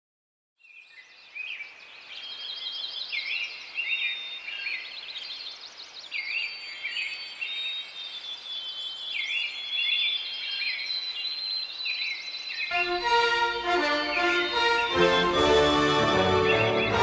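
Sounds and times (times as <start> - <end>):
songbirds singing: 0.6 - 17.0.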